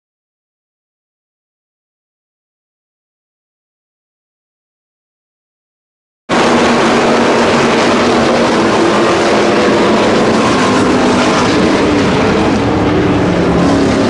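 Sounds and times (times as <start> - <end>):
race car engines: 6.3 - 14.0.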